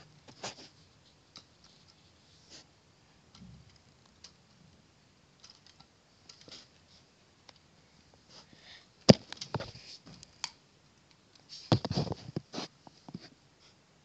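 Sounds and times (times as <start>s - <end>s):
plastic parts clicking and rattling: 5.4s - 6.8s.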